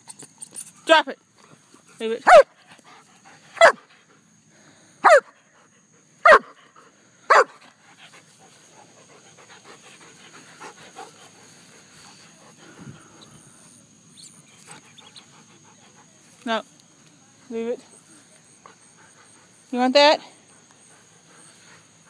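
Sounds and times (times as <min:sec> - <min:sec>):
dog barking: 0:02.2 - 0:02.5, 0:03.6 - 0:03.8, 0:05.0 - 0:05.3, 0:06.2 - 0:06.6, 0:07.3 - 0:07.6
dog panting: 0:05.5 - 0:13.5, 0:14.3 - 0:16.4, 0:17.9 - 0:22.0
rustling in grass: 0:07.6 - 0:22.0.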